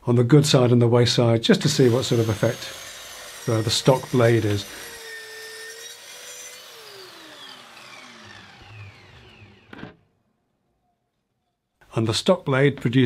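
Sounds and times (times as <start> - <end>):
saw motor whining and spinning down: 1.8 - 10.1.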